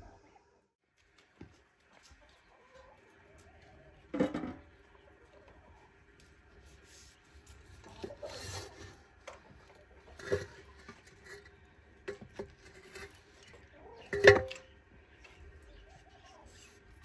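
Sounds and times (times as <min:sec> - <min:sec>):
poker scraping metal plate: 0:07.8 - 0:09.0, 0:10.0 - 0:14.6.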